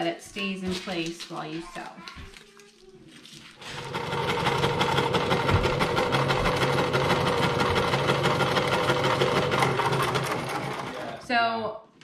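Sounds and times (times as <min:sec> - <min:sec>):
sewing machine running: 0:03.7 - 0:11.2.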